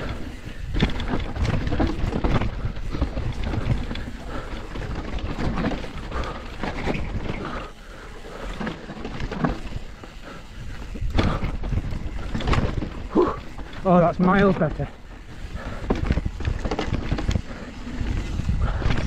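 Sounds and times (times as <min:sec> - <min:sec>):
wind and tyre rumble: 0:00.0 - 0:19.0
bike knocking over bumps: 0:00.1 - 0:07.7.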